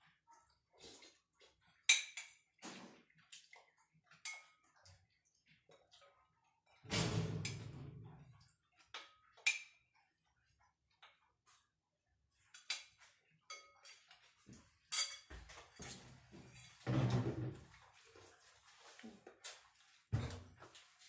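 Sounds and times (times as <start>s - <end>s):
metal spoon clinking on ceramic bowl: 13.5s - 14.1s, 14.9s - 15.3s.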